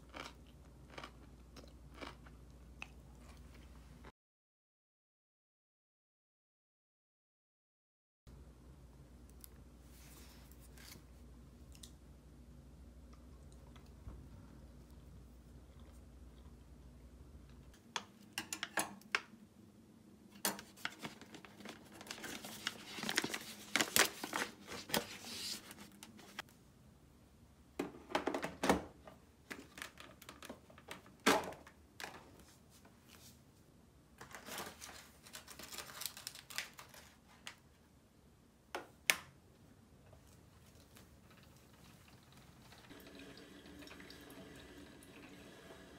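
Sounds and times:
rustling and crinkling: 0:20.6 - 0:26.5, 0:34.2 - 0:37.8.

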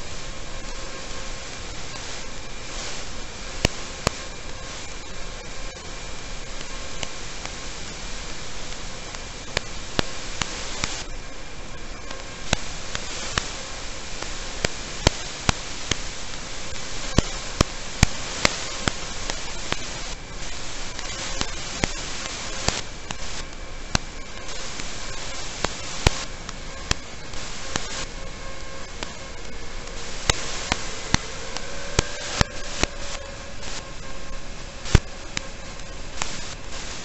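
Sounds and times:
faint steady hum: 0:00.0 - 0:37.0
static hiss: 0:00.0 - 0:37.0
sharp clicks: 0:06.5 - 0:11.1, 0:12.0 - 0:28.1, 0:28.8 - 0:33.9, 0:34.8 - 0:37.0.

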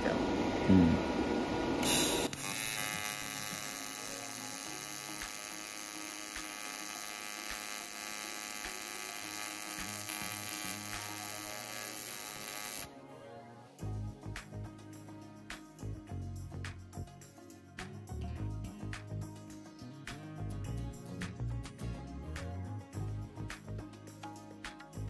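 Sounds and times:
welding arc buzzing: 0:00.0 - 0:12.9.

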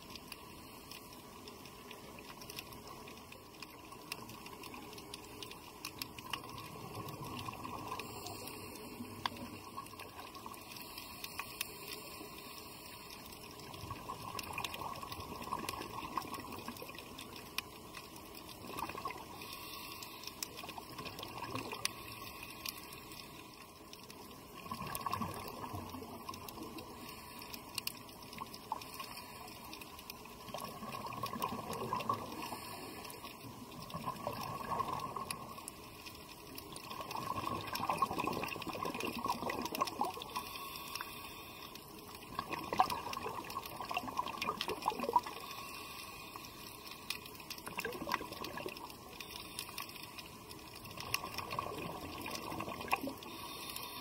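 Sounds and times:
faint clicking: 0:00.0 - 0:54.0
bubbles gurgling: 0:13.6 - 0:17.0, 0:24.6 - 0:26.5, 0:30.4 - 0:32.5, 0:33.8 - 0:35.6, 0:36.8 - 0:40.4, 0:42.3 - 0:45.4, 0:47.6 - 0:49.1, 0:50.9 - 0:53.3.

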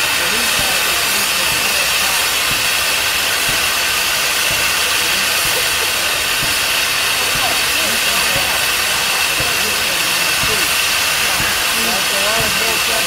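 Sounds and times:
steam hissing: 0:00.0 - 0:13.0.

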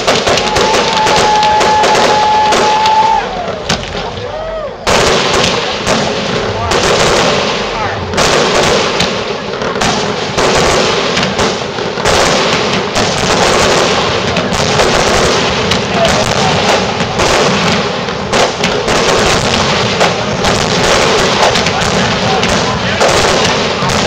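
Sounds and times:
fireworks bursting with bangs and crackle: 0:00.0 - 0:24.0.

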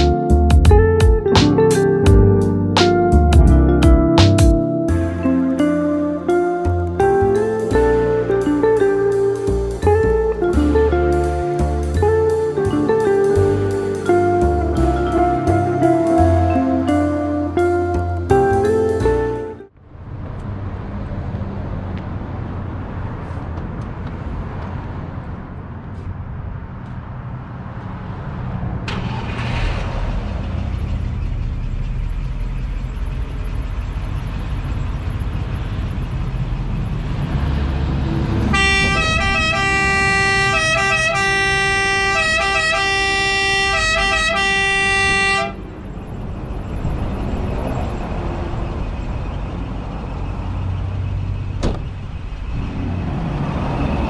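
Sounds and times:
emergency siren wailing: 0:31.4 - 0:50.4.

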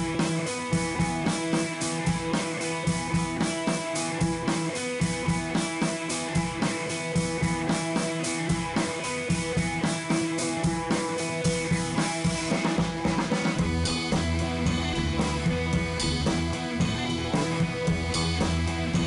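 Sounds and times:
drum beat: 0:00.0 - 0:19.0
guitar: 0:00.0 - 0:19.0
bass line: 0:13.6 - 0:19.0.

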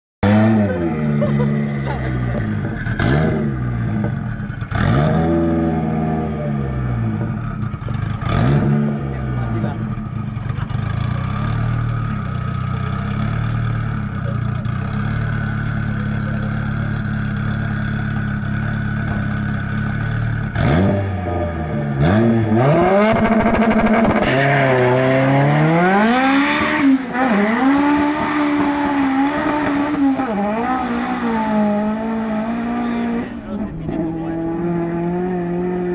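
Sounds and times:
drag car engine accelerating: 0:00.2 - 0:35.9.

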